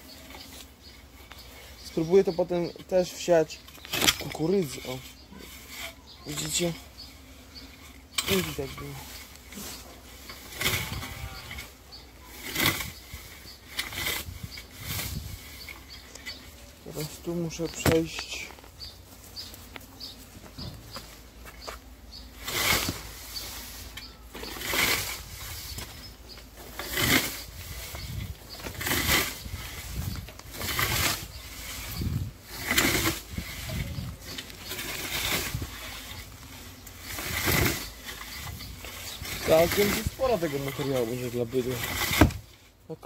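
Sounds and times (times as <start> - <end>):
scythe swishing through crops: 22.4 - 36.2.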